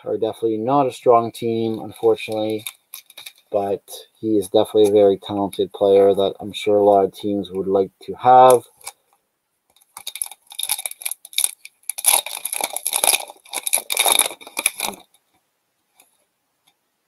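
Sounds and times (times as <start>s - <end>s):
foil wrapper crinkling and tearing: 1.6s - 3.6s, 9.8s - 15.1s.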